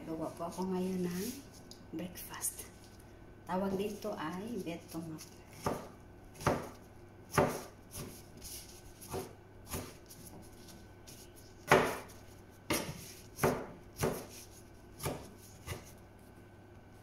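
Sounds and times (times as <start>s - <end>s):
knife chopping on cutting board: 5.5s - 8.2s, 9.0s - 10.4s, 11.1s - 16.0s.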